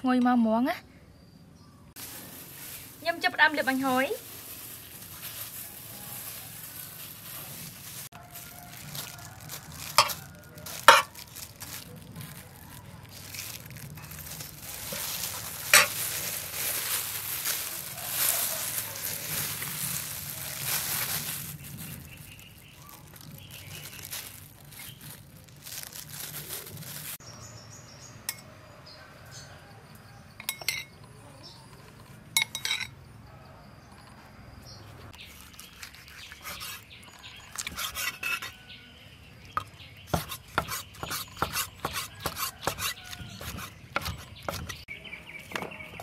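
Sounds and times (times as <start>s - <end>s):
oil crackling hiss: 2.0s - 10.0s, 10.8s - 27.2s
metal spoon clinking on tray: 10.9s - 11.1s, 30.4s - 31.0s, 32.4s - 33.0s.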